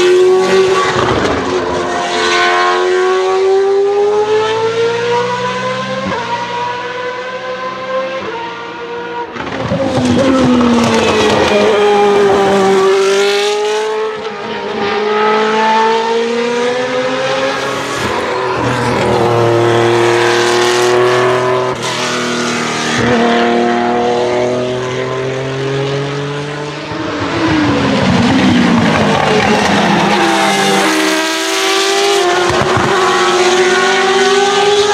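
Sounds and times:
race car engines passing: 0.0 - 34.9.

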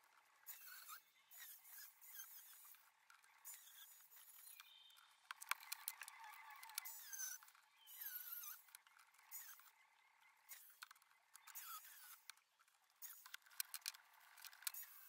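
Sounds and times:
sharp metal clicks: 2.1 - 9.8, 10.4 - 15.0
short squeaks: 3.5 - 9.7.

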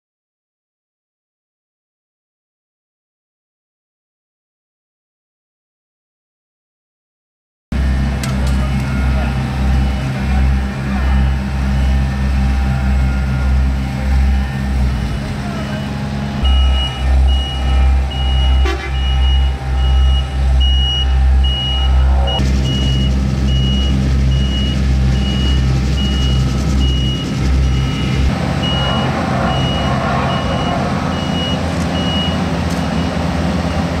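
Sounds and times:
deep low pulsing drone: 7.7 - 34.0
paving machinery running: 7.7 - 34.0
reversing alarm beeping: 7.8 - 34.0.

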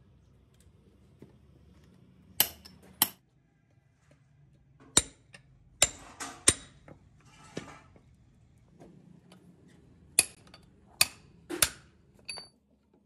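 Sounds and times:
hammer striking metal: 2.4 - 3.2, 4.9 - 6.8.

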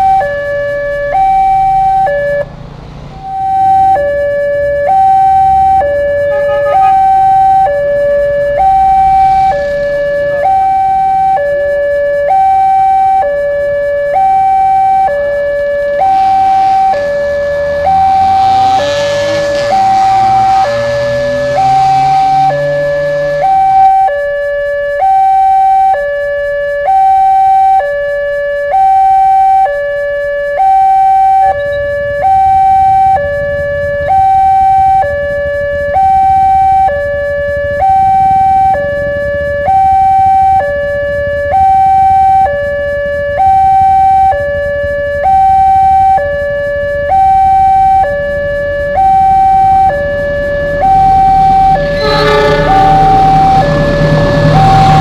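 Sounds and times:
two-tone crossing alarm: 0.0 - 55.0
low rumble: 50.2 - 55.0.

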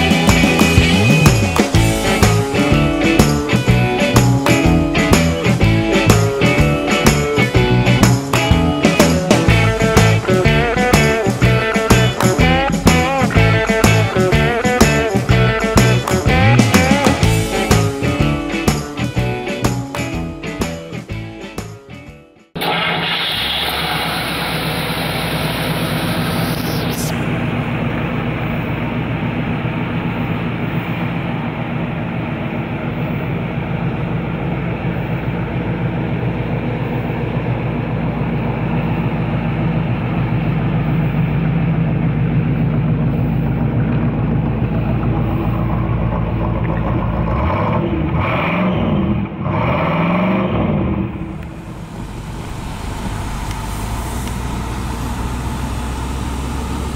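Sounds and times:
car engine idling and revving: 0.0 - 56.9.

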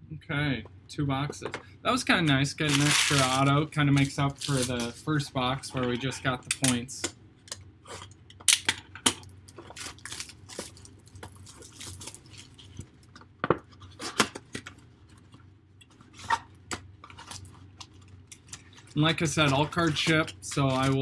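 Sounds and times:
shrink wrap crinkling: 2.1 - 5.3, 9.1 - 16.4, 17.0 - 21.0.

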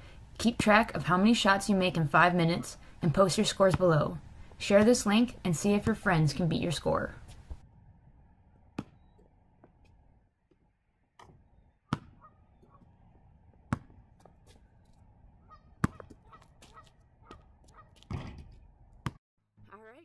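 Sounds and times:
basketball bouncing on concrete: 3.5 - 6.2, 8.8 - 10.6, 11.2 - 12.9, 13.5 - 14.6, 15.7 - 19.2.

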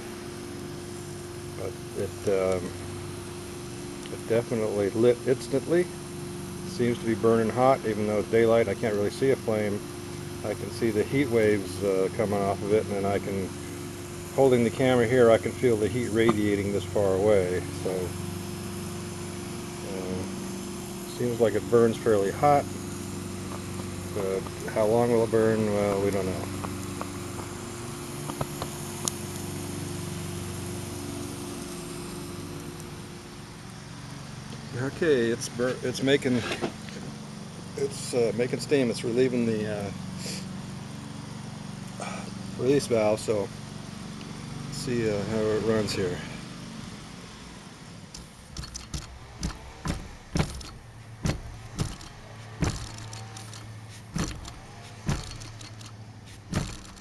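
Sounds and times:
low hum and hiss: 0.0 - 57.0
toy steam engine chuffing: 51.7 - 57.0.

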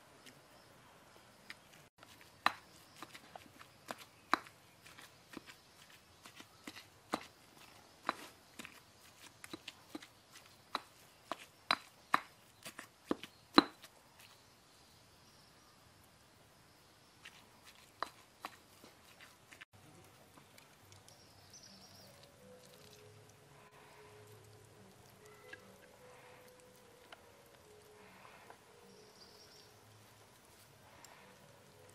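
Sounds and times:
stone pestle pounding in mortar: 3.9 - 4.5, 10.7 - 13.9.

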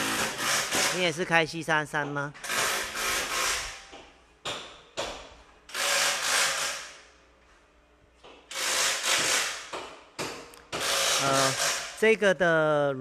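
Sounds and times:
power tool running in bursts: 0.0 - 1.0, 10.8 - 11.9.

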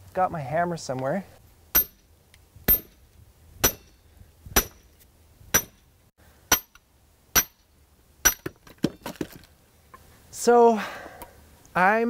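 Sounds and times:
hammer striking steel hatchet head: 1.8 - 2.0, 2.7 - 3.0, 3.6 - 4.0, 4.6 - 4.9, 5.5 - 5.8, 6.5 - 6.8, 7.4 - 7.6, 8.2 - 8.5.

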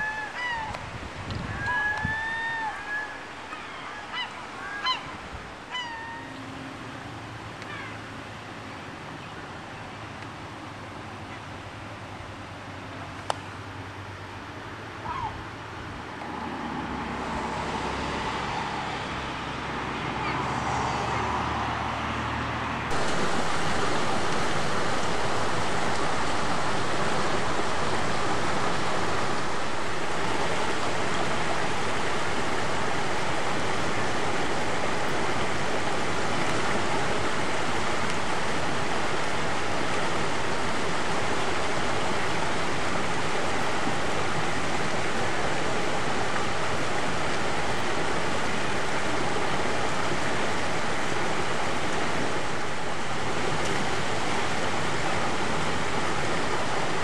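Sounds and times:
water rushing down a fish ladder: 0.0 - 0.7, 15.8 - 57.0.

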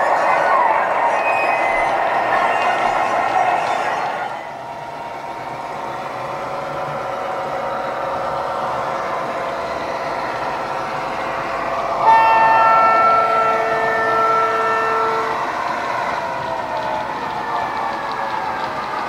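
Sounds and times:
model diesel engine sound: 4.4 - 19.0
multi-tone horn: 11.9 - 15.6.

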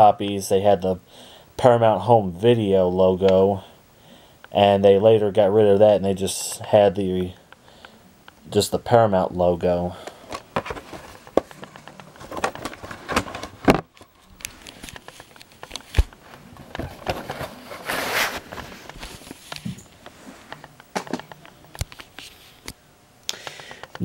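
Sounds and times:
plastic tape cases clicking and knocking: 10.3 - 17.4.

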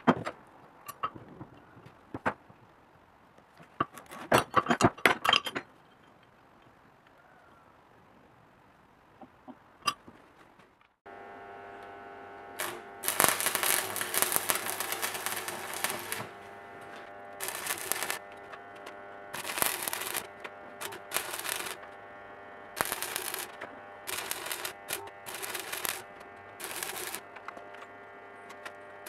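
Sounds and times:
steady electrical hum: 11.1 - 29.0
welding arc crackling: 11.1 - 29.0.

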